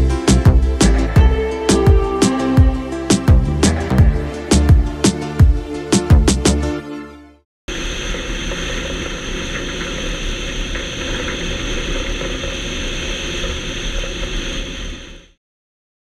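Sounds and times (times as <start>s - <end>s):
airflow rush: 0.2s - 6.7s.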